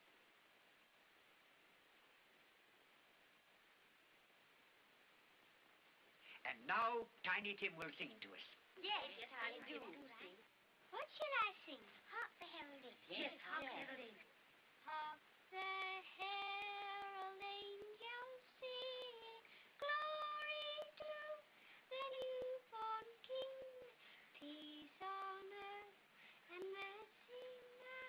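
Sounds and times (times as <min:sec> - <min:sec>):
old film soundtrack crackle: 0:05.6 - 0:10.3, 0:14.8 - 0:28.0
boy singing slow song: 0:14.8 - 0:28.0.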